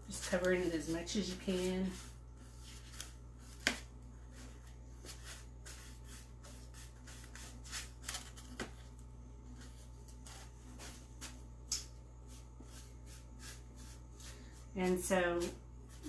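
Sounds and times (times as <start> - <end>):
paintbrush rubbing on foam: 0.1 - 3.5, 4.2 - 7.8, 12.2 - 16.0.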